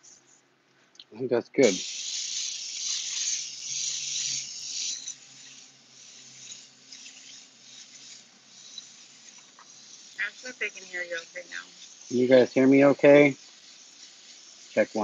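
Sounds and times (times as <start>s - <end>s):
airbrush hissing: 0.0s - 0.4s, 1.6s - 15.0s.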